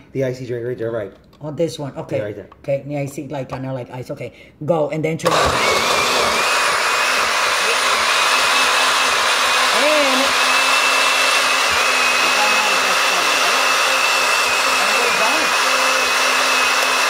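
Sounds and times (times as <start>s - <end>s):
blender crushing ice: 5.3s - 17.0s.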